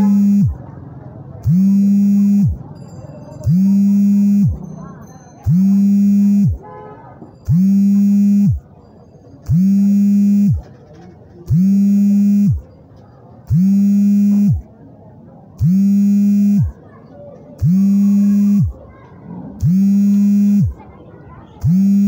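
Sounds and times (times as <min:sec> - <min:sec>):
pulsing electronic alarm tone: 0:00.0 - 0:00.6, 0:01.4 - 0:02.6, 0:03.4 - 0:04.6, 0:05.4 - 0:06.6, 0:07.5 - 0:08.6, 0:09.5 - 0:10.6, 0:11.5 - 0:12.6, 0:13.5 - 0:14.6, 0:15.6 - 0:16.7, 0:17.6 - 0:18.8, 0:19.6 - 0:20.7, 0:21.6 - 0:22.0.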